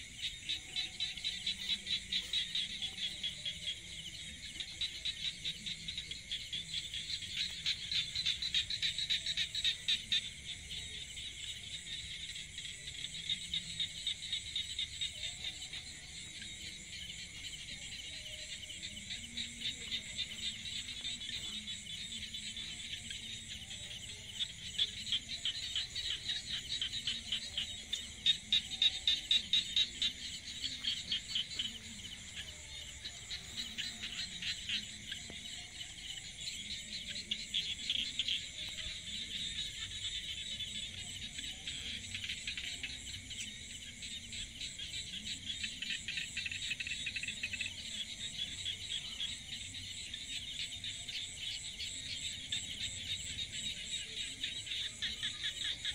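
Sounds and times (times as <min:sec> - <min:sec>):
insects trilling: 0:00.0 - 0:55.9.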